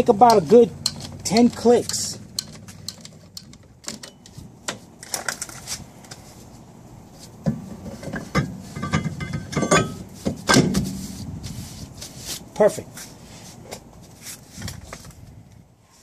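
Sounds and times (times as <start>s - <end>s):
metal scraping and knocking: 0.0s - 6.2s, 7.4s - 11.5s
short metallic ring: 8.4s - 10.1s.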